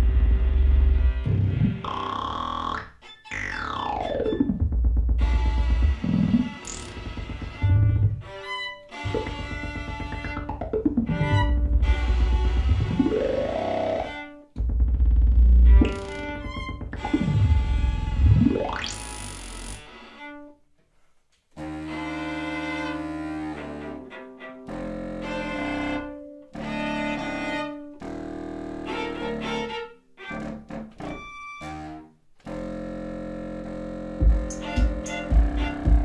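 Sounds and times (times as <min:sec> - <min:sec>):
low contrabassoon notes: 0:00.0 - 0:18.8, 0:21.6 - 0:36.0
bowed viola: 0:00.0 - 0:20.6, 0:21.5 - 0:36.0
low thumps: 0:04.0 - 0:18.8, 0:34.2 - 0:36.0
rising synth sweep: 0:09.0 - 0:14.1.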